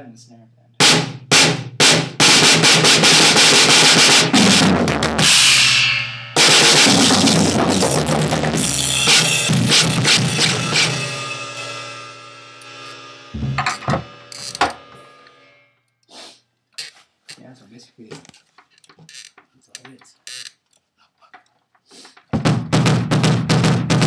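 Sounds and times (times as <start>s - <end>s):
snare drum hits: 0.8s - 5.1s, 12.8s - 14.9s, 22.3s - 24.0s
drum kit ringing: 0.8s - 15.8s, 22.3s - 24.0s
bass drum hits: 13.4s - 15.1s, 22.4s - 24.0s.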